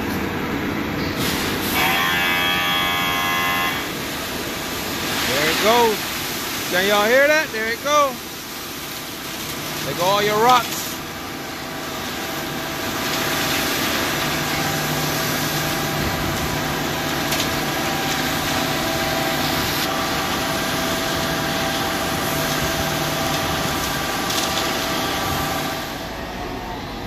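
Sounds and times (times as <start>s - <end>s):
machinery hum: 0.0s - 27.0s
truck engine hum: 0.0s - 27.0s
gravel pouring down a chute: 4.9s - 11.1s, 11.7s - 26.1s.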